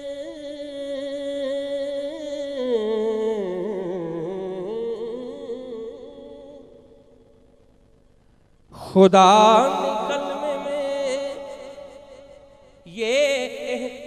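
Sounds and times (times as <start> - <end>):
man singing into a microphone: 0.0 - 6.9, 8.8 - 14.0.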